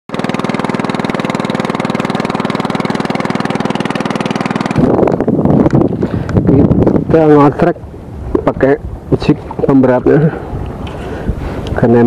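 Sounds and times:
small boat engine running: 0.1 - 12.0
loud uneven rushing noise: 0.3 - 7.4.

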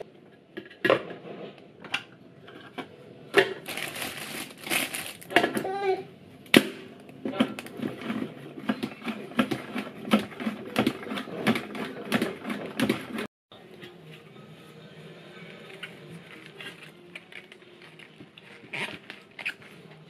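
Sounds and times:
lettuce leaves rustling: 3.6 - 5.3.

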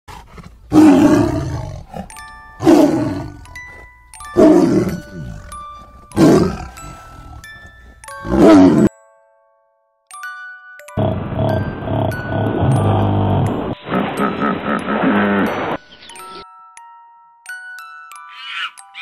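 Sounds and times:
tiger roaring: 0.1 - 3.5, 4.4 - 5.5, 6.2 - 7.4, 8.2 - 8.9
light chiming music: 0.8 - 19.0.

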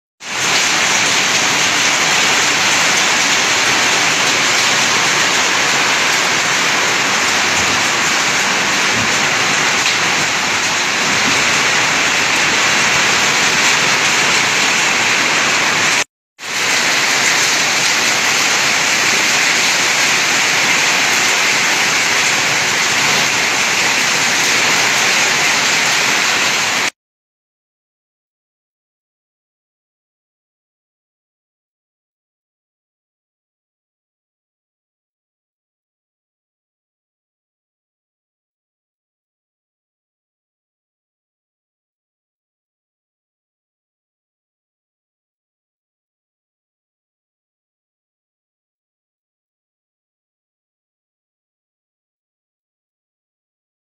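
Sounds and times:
heavy rain pouring on pavement: 0.2 - 27.0.

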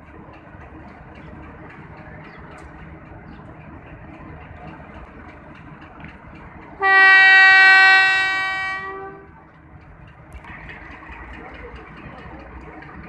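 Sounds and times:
idling engine rumble: 0.0 - 13.0
locomotive air horn blast: 6.8 - 9.3.

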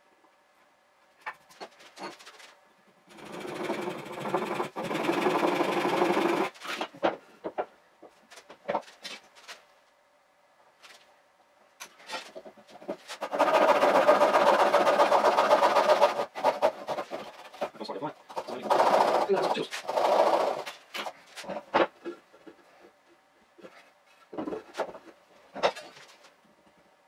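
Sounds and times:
wood and tools clattering: 1.2 - 2.6, 5.9 - 9.6, 11.8 - 23.0, 23.6 - 26.4
handsaw cutting wood: 3.1 - 6.6, 13.0 - 21.1.

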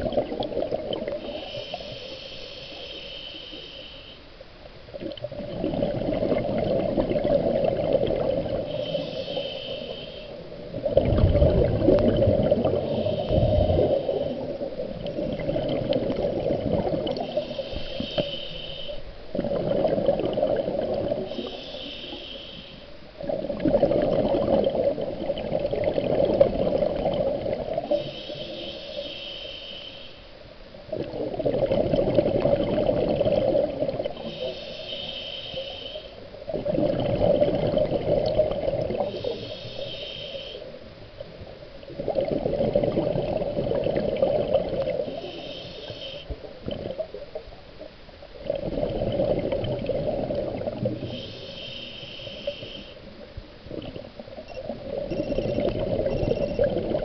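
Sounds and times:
bubbling of exhaled bubbles: 0.0 - 1.2, 5.0 - 8.8, 10.7 - 17.4, 19.3 - 21.3, 23.2 - 27.9, 30.9 - 34.3, 36.5 - 39.2, 41.9 - 45.2, 48.4 - 51.2
regulator air hiss: 1.2 - 4.4, 8.6 - 10.5, 12.8 - 14.5, 17.2 - 19.2, 21.2 - 23.1, 27.8 - 30.4, 34.2 - 36.3, 39.1 - 40.8, 45.0 - 46.4, 51.0 - 53.1.

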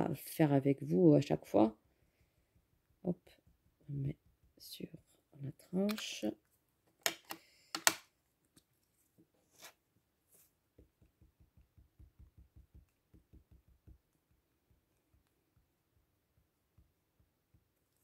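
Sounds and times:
ink pad tapping on stamp: 10.8 - 14.3.

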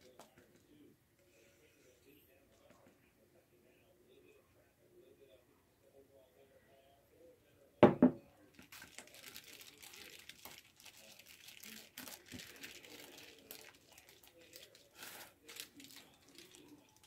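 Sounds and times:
bowl knocking on table: 7.8 - 8.2
foil crinkling: 8.6 - 17.0.

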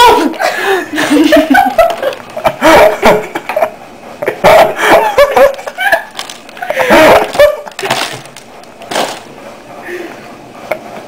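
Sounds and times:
girl laughing hard: 0.0 - 8.0.

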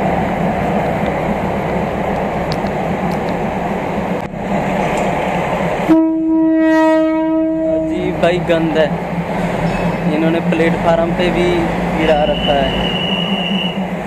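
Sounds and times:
train rumble: 0.0 - 14.0
train horn: 5.9 - 7.9, 12.3 - 13.8.

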